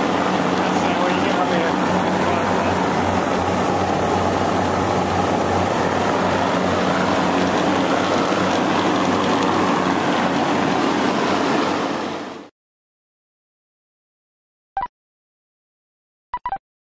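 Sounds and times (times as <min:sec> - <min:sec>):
compressor hum: 0:00.0 - 0:12.5
condenser fans rushing: 0:00.0 - 0:12.5.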